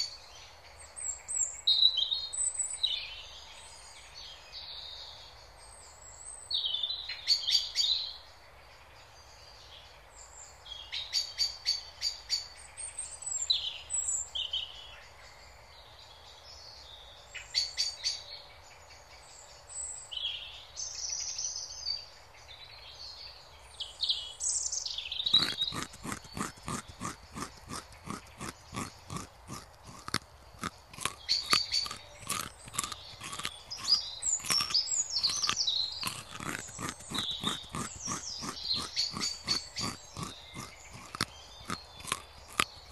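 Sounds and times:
songbirds singing and trilling: 0.0 - 42.9
rabbit chewing grass: 25.3 - 42.9.

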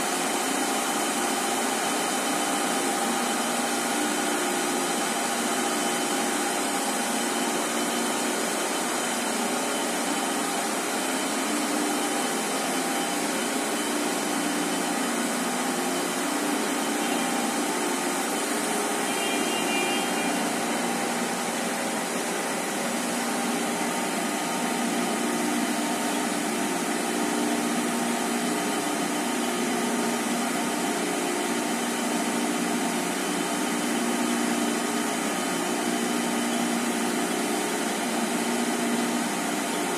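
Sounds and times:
machine whirring: 0.2 - 39.9
brief high tones: 19.0 - 20.8.

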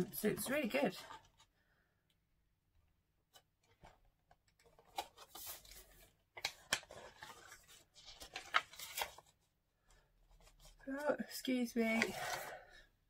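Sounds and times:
items being handled: 3.2 - 9.4
paper rustling: 4.6 - 9.4.

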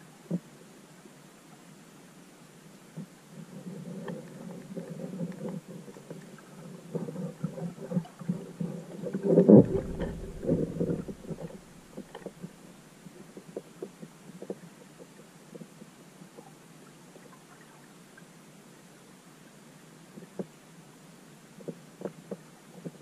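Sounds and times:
muffled underwater rumble: 3.4 - 12.8.

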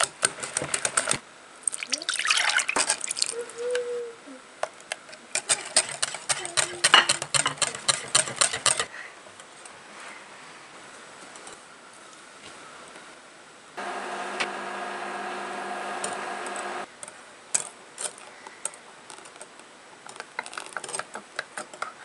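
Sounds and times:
whisk clicking against glass bowl: 5.4 - 8.9.

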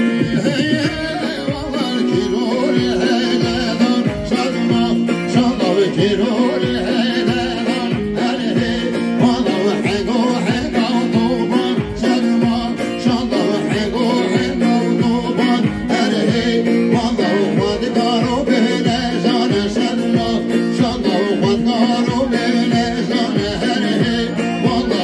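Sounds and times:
low drum beat: 0.0 - 25.0
man singing: 0.0 - 25.0.

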